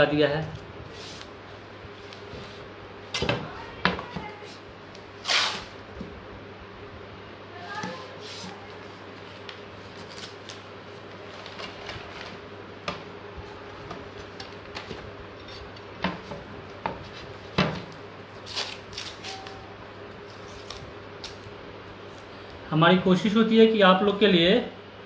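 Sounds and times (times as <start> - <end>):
steady low hum: 0.0 - 25.0
tape ripping off roll: 5.2 - 5.8, 18.4 - 19.4.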